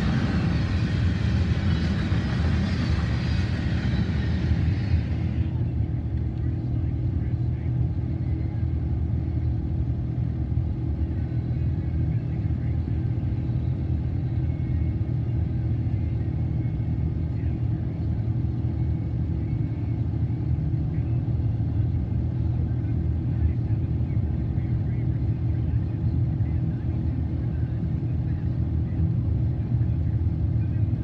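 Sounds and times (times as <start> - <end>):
car cabin road and engine rumble: 0.0 - 31.0.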